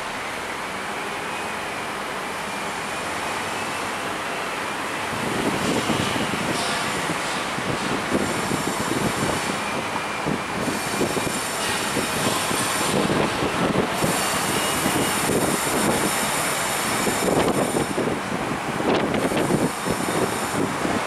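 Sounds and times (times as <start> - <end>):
bus road noise: 0.0 - 21.0
wind buffeting microphone: 5.1 - 21.0.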